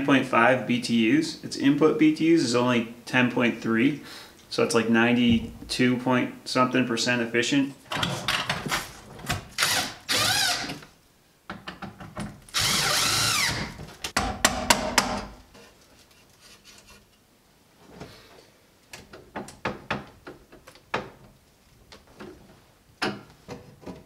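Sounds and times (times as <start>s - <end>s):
power drill running: 9.6s - 10.7s, 12.5s - 13.7s.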